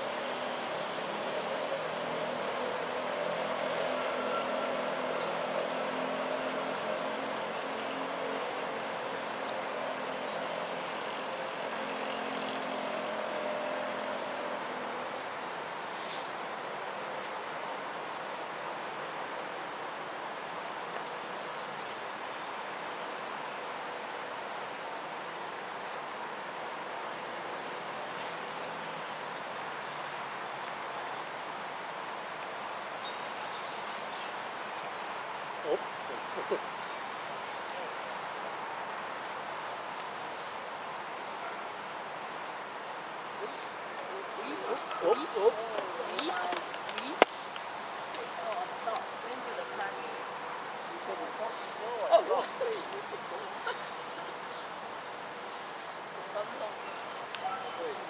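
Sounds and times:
distant engine hum: 0.0s - 16.5s
high insect drone: 0.0s - 58.0s.

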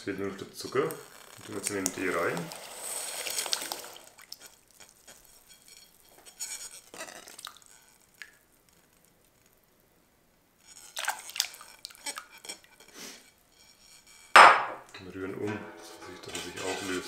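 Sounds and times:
sugar trickling into tea: 0.3s - 9.6s, 10.7s - 14.1s.

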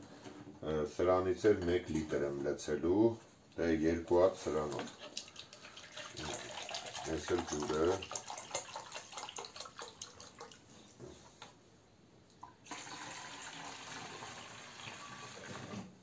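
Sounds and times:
water pouring steadily into tank: 4.4s - 10.8s, 12.4s - 15.8s
water splashing into plastic jug: 4.6s - 10.7s.

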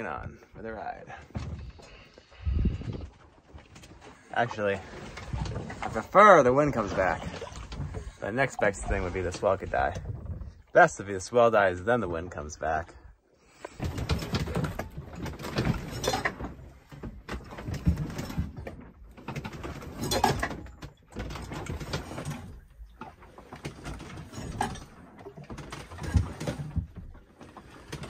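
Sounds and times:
hull and rig creaking: 0.0s - 28.0s
gear knocking and rattling: 13.7s - 28.0s.

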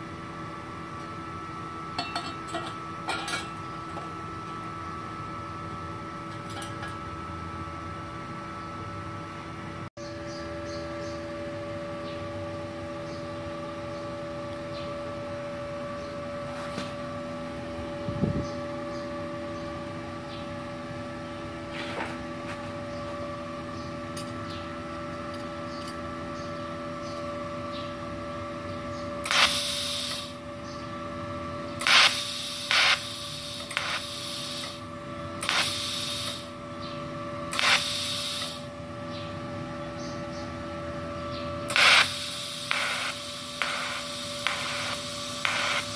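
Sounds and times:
welder fan hum: 0.0s - 45.9s
torch gas hissing bursts: 29.2s - 30.4s, 31.8s - 36.6s, 37.5s - 38.7s, 41.7s - 45.9s.

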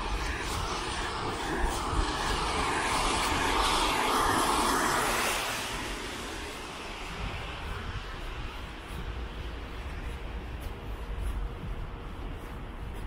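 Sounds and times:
car tyres hissing on wet asphalt: 0.0s - 9.7s.

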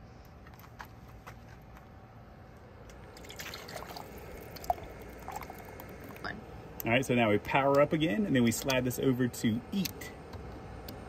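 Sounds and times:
soup pouring and dripping: 3.0s - 6.2s.

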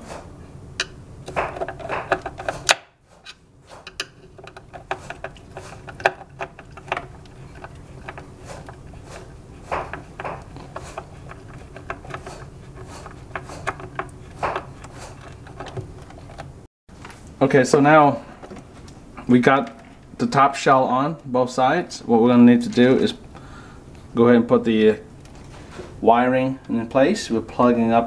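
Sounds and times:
light clicks taps and scrapes: 0.8s - 16.5s.

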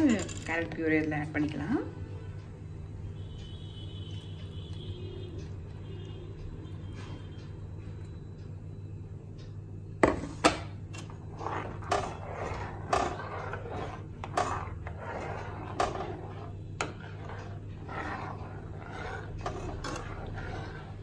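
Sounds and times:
steady low hum: 0.0s - 21.0s
spoon stirring liquid in pan: 10.7s - 21.0s.

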